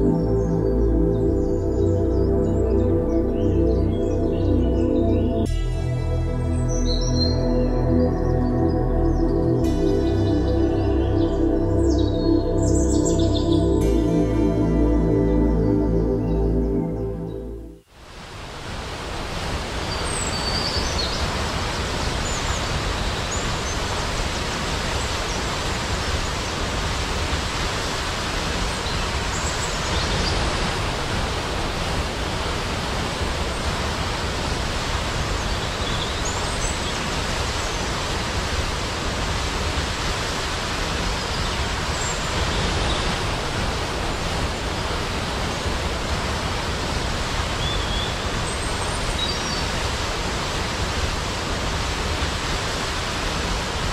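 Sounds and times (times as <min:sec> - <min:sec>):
waterfall roaring: 0:18.0 - 0:53.9.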